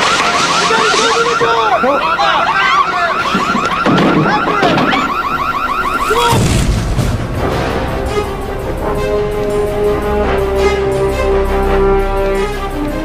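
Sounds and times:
fast rising alarm beeps: 0.0s - 6.5s
gliding cries: 0.0s - 6.5s
low thud: 6.3s - 7.8s.

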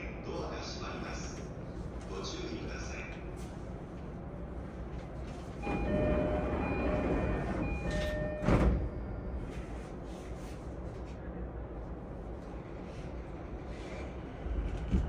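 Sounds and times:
low train interior hum: 0.0s - 15.0s
sliding doors thumping shut: 5.6s - 8.9s
train door-closing chime: 5.6s - 9.3s.

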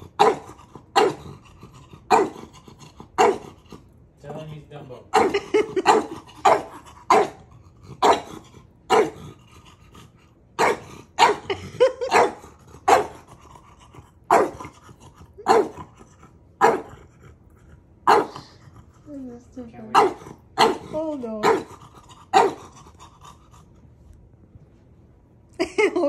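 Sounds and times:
dog barking sharply: 18.1s - 18.4s.

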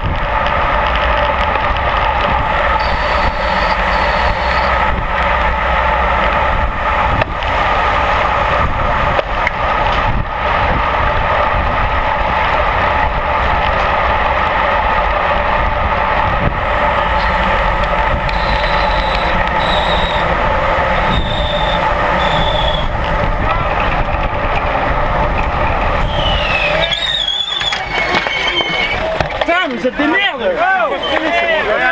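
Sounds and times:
wind rushing on microphone: 0.0s - 29.4s
bicycle road noise: 0.0s - 31.9s
short high-pitched tones: 2.5s - 5.2s, 16.6s - 23.0s.

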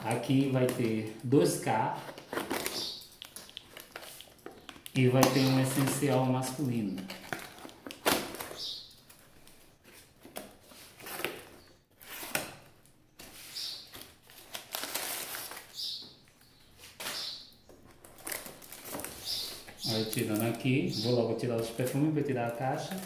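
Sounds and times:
cardboard and paper rustling: 0.0s - 12.4s, 13.2s - 15.7s, 17.8s - 20.8s
knife slitting packing tape: 14.3s - 15.7s.

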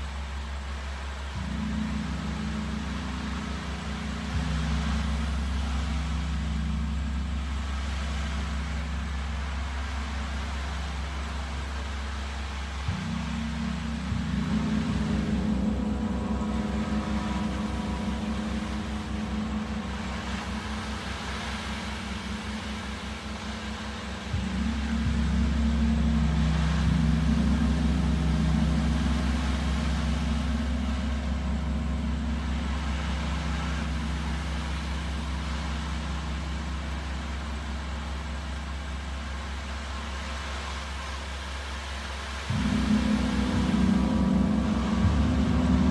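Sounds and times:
gong struck with soft mallet: 12.8s - 37.8s, 42.5s - 45.9s.

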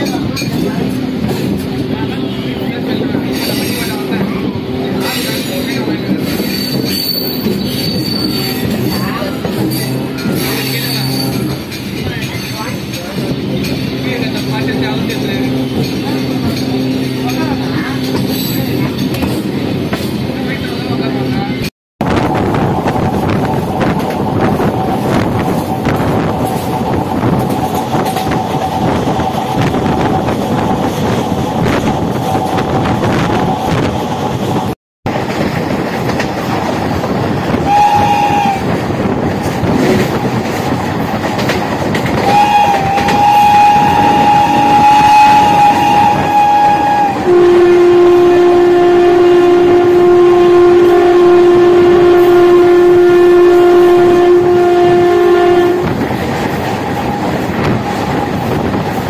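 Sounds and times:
train wind and track noise: 0.0s - 59.0s
train horn: 7.9s - 11.6s, 37.6s - 38.8s, 42.2s - 56.0s.

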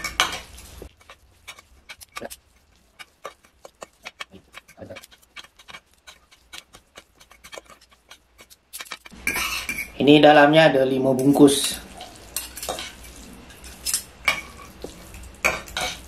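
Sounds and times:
forks and spoons clinking: 8.7s - 10.0s, 11.6s - 14.8s.

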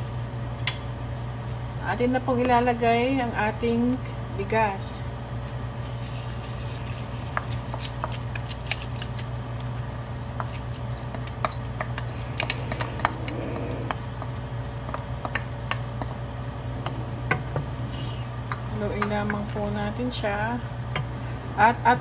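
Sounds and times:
broth boiling in a pot: 0.0s - 22.0s
steady low hum: 9.3s - 22.0s
wooden spoon scraping a bowl: 10.8s - 14.4s.

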